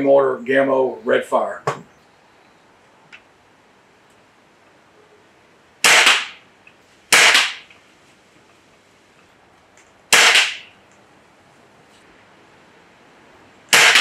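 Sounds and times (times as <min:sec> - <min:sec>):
air rifle shots: 0:05.8 - 0:06.4, 0:07.1 - 0:07.7, 0:10.1 - 0:10.8, 0:13.7 - 0:14.0.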